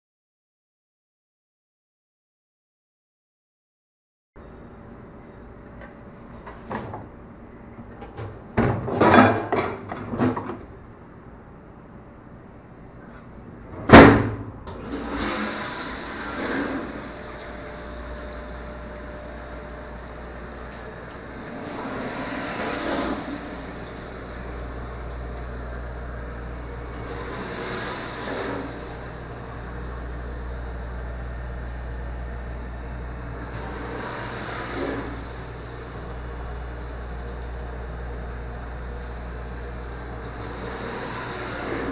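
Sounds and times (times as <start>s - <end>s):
low background hum: 4.4s - 41.9s
water spraying inside dishwasher: 14.8s - 30.0s.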